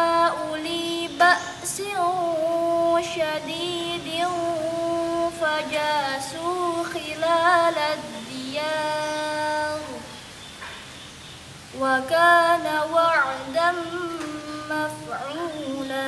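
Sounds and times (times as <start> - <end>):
girl reciting melodically: 0.0 - 10.3, 11.7 - 16.0.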